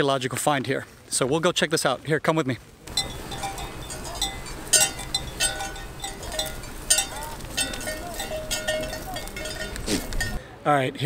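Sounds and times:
goat bells clinking: 2.9 - 10.4.

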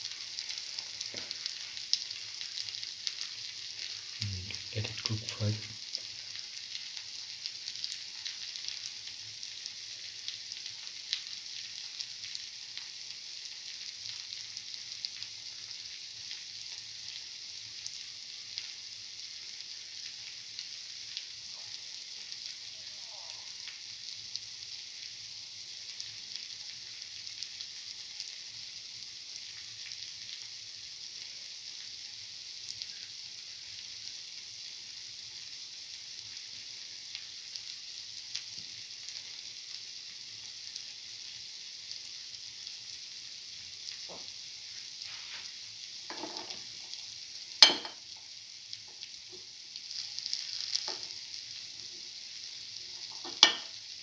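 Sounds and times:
fritters sizzling in hot oil: 0.0 - 54.0.

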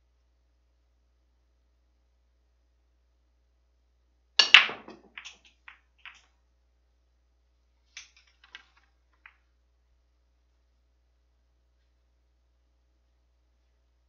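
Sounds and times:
pool cue ball break cracks: 4.4 - 6.2
billiard balls clicking: 4.4 - 6.4, 7.9 - 9.5.

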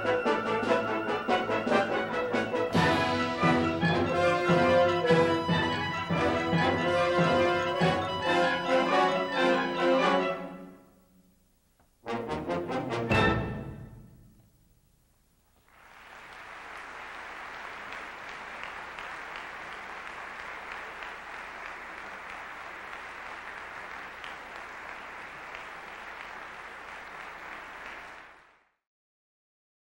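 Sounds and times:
audience applauding: 15.6 - 28.7.

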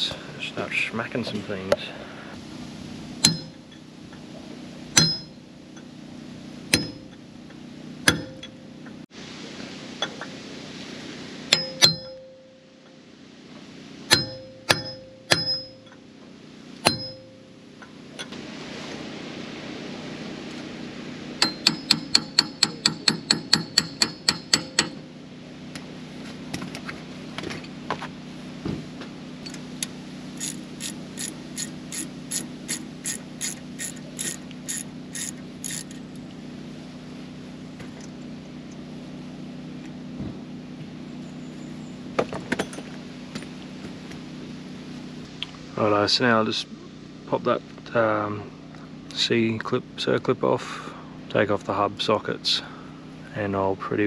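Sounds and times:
steady low hum: 0.0 - 54.0
hammer striking metal punch: 3.2 - 3.6, 5.0 - 5.4, 6.7 - 7.2, 8.0 - 8.6, 11.5 - 12.4, 14.1 - 16.0, 16.8 - 17.4, 21.4 - 25.0.

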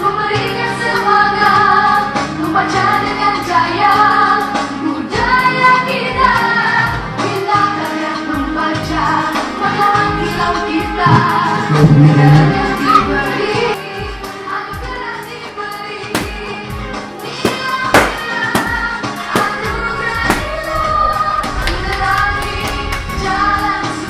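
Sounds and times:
several voices singing: 0.0 - 24.0
song with steady beat: 8.9 - 15.0.

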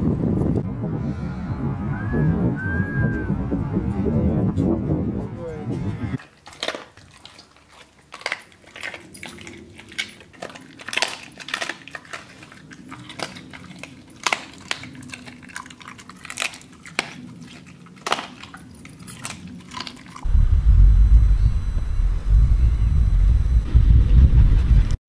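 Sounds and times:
dog chewing with crunching: 6.2 - 20.3.

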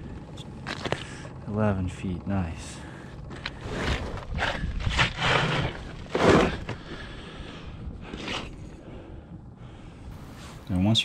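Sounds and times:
crunches and scrapes on snowy ice: 3.4 - 7.1.

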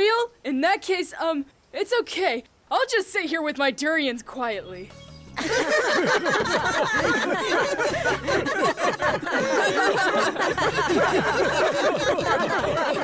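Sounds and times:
group of people laughing: 5.4 - 13.0.

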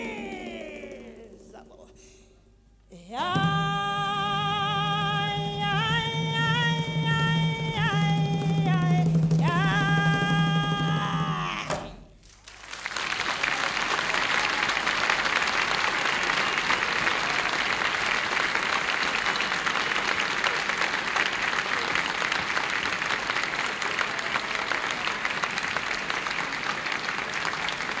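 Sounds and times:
audience applauding: 0.0 - 1.6, 12.2 - 28.0.

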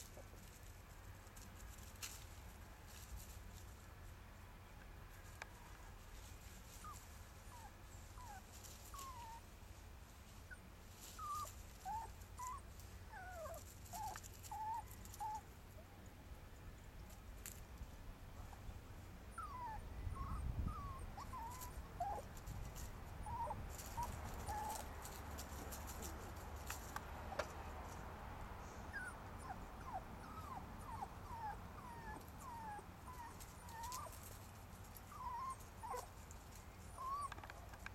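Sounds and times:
dry leaves crackling underfoot: 0.0 - 4.2, 5.1 - 15.4, 21.4 - 28.1, 33.2 - 37.2
dog whining: 19.3 - 22.2, 28.9 - 34.1, 36.9 - 37.4.

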